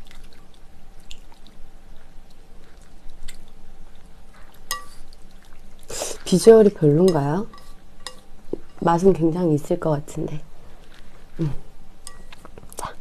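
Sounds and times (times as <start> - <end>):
wet squelching of noodles: 0.0 - 8.8.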